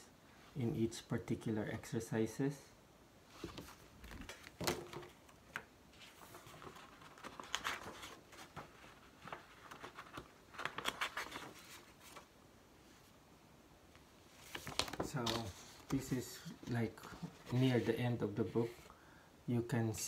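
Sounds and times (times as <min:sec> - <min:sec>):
paper pages turning: 0:03.4 - 0:12.3, 0:14.4 - 0:18.8.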